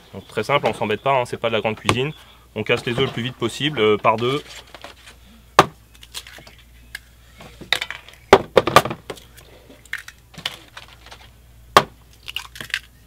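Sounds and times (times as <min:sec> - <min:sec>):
eggshells cracking: 0:05.9 - 0:07.1, 0:09.1 - 0:11.3, 0:12.0 - 0:13.0.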